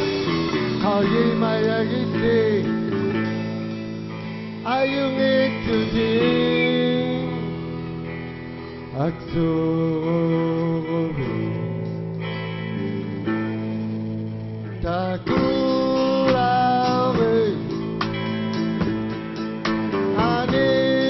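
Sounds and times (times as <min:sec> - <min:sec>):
man singing long held notes: 0:00.0 - 0:03.4, 0:04.6 - 0:07.9, 0:08.9 - 0:12.1, 0:14.7 - 0:18.0, 0:20.1 - 0:21.0
guitar: 0:00.0 - 0:21.0.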